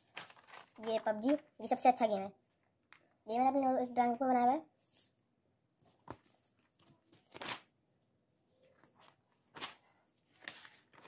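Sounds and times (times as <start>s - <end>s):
paper pages rustling: 0.0s - 1.5s, 5.8s - 7.8s, 8.6s - 11.0s.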